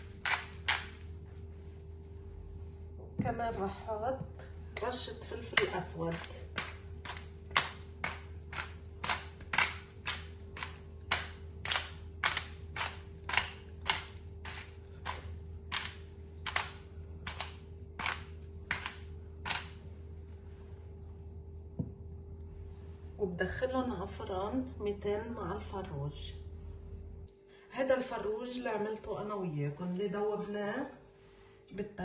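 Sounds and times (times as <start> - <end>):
pepper mill grinding: 0.0 - 1.2, 4.8 - 19.8
steady low hum: 0.0 - 32.0.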